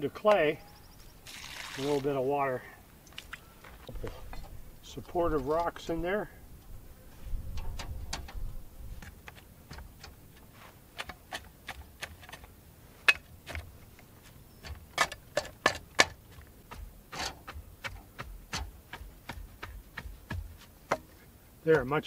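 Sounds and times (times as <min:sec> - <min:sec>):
shovel knocking dirt and rocks: 0:09.0 - 0:13.8, 0:14.6 - 0:21.2.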